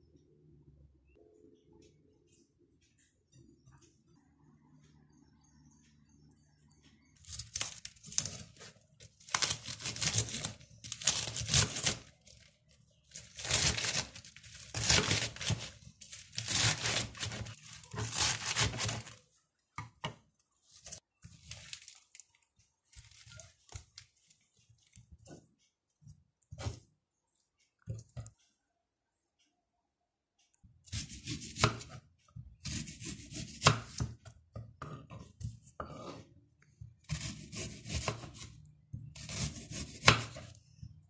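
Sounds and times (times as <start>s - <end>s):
lettuce leaves ripping: 9.3s - 12.1s, 13.1s - 19.2s
leaves rustling and tapping: 21.3s - 25.1s.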